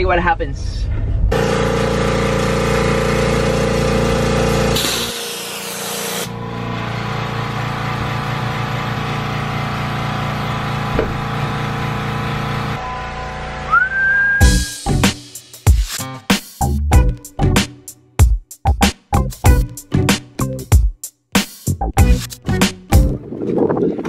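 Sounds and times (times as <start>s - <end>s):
air pump humming: 1.3s - 12.9s, 13.6s - 15.0s.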